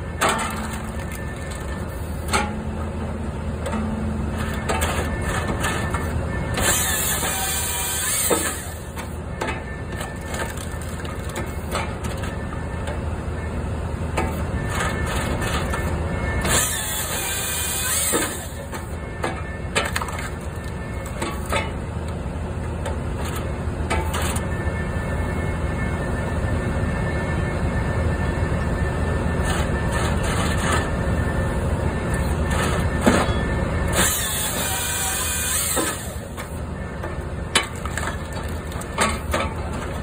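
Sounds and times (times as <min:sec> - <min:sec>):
engine humming: 0:00.0 - 0:40.0
saw cutting log whine: 0:06.4 - 0:09.1, 0:16.4 - 0:19.0, 0:33.9 - 0:36.6.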